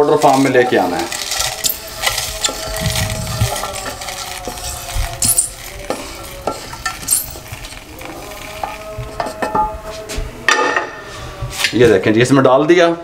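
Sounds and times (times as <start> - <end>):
seeds rattling into a metal jar: 0.0 - 8.8.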